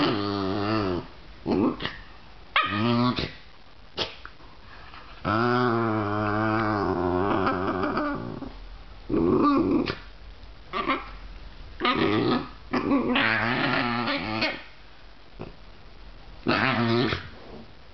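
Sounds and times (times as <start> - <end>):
dogs growling: 0.0 - 2.0, 5.2 - 10.1, 11.8 - 14.6.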